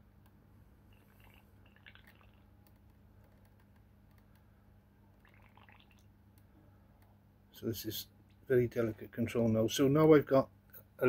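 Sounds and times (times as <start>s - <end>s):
faint low hum: 0.0s - 11.0s
water dripping: 5.2s - 6.1s.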